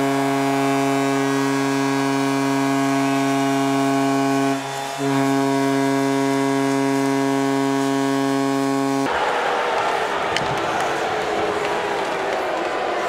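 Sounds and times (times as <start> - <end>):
loud droning hum: 0.0 - 9.1.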